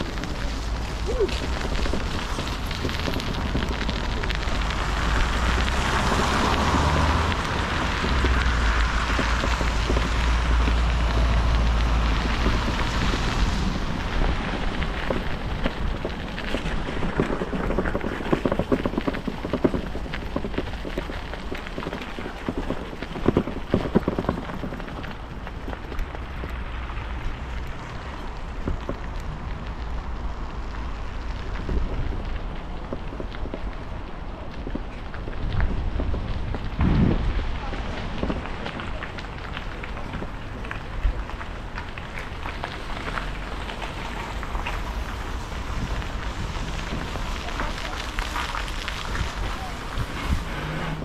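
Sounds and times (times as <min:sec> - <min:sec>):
bicycle tyre noise: 0:00.0 - 0:51.0
wind on microphone: 0:31.5 - 0:39.0, 0:43.9 - 0:51.0.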